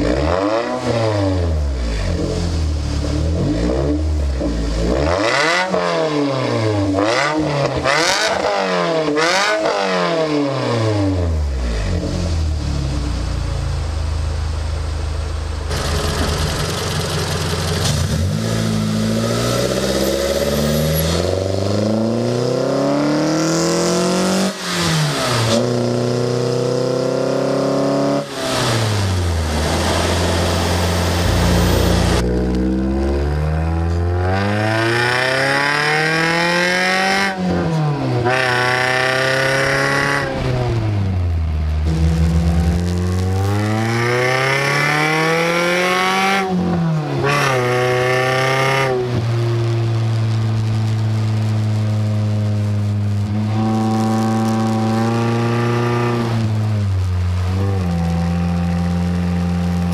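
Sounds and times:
car engine accelerating: 0.0 - 59.9.

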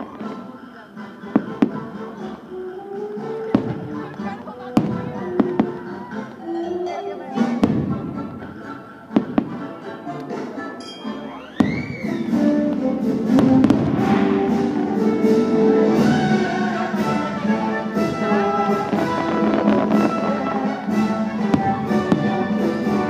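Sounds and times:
orchestral music with strings and brass: 0.0 - 23.0
fireworks bangs and crackles: 1.3 - 1.9, 3.4 - 6.1, 7.4 - 9.8, 11.4 - 23.0.

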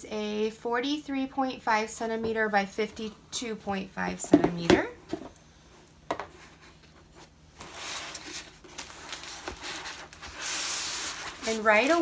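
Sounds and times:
canvas rustling: 7.8 - 12.0.

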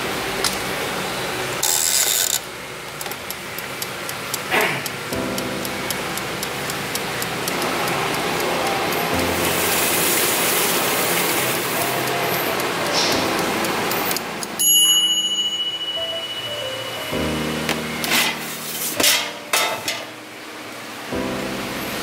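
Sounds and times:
air fryer fan rushing: 0.0 - 14.6, 17.2 - 22.0
mechanical timer ticking: 1.6 - 16.0
soft background music: 5.1 - 22.0
thin high tone: 5.1 - 22.0.

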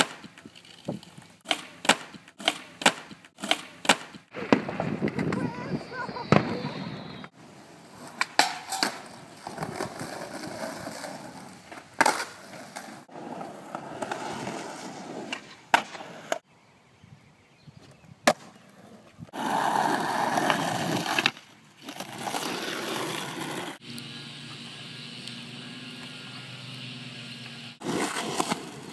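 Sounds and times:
skateboard wheels rolling on concrete: 0.0 - 16.5, 17.6 - 28.9
skateboard clacking: 8.2 - 11.1.

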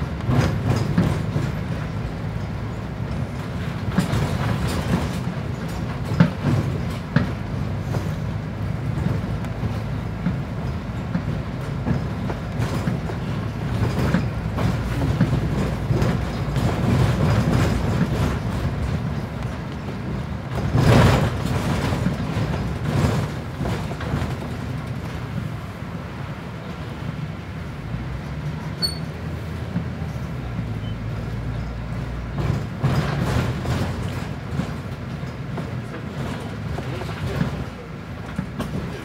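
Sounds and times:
bus running gear rumble: 0.0 - 39.0
body rattles and knocks: 3.1 - 25.3, 32.2 - 39.0.

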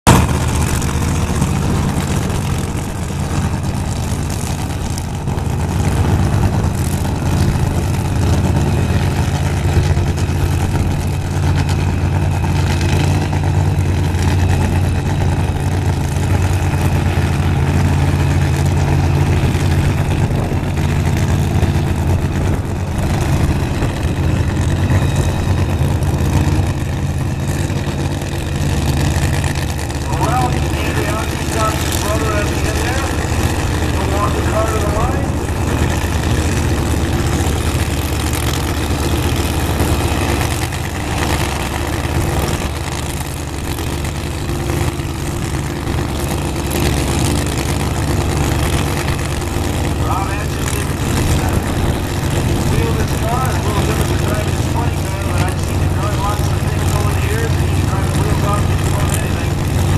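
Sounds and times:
drag racing engines idling: 0.0 - 59.9.

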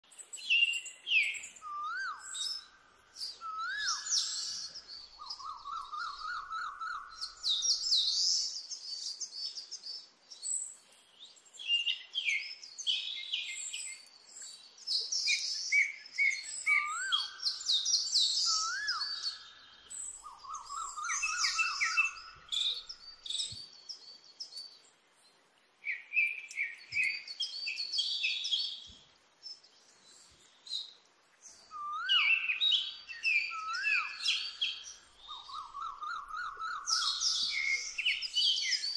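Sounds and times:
birds chirping and singing: 0.1 - 24.9, 25.8 - 38.9
bird whistles: 0.5 - 2.7, 3.4 - 8.5, 15.3 - 23.6, 31.7 - 38.9
low bird trill: 33.4 - 38.9.

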